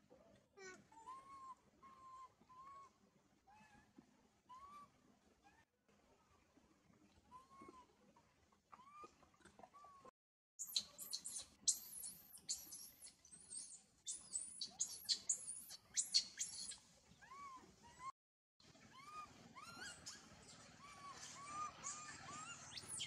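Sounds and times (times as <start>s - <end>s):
baby monkey screaming: 1.0s - 2.8s, 10.6s - 18.1s, 18.9s - 23.0s.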